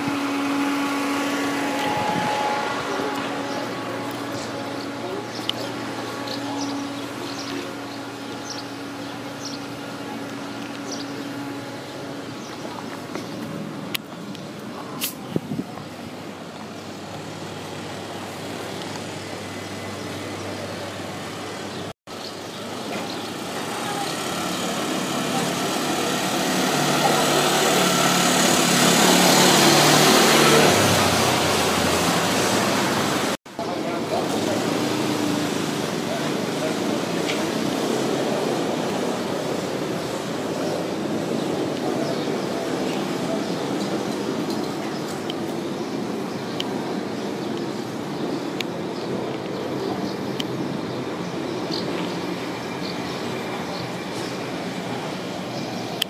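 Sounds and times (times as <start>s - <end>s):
small birds chirping: 4.3s - 13.6s
quad bike engine passing by: 23.6s - 33.3s.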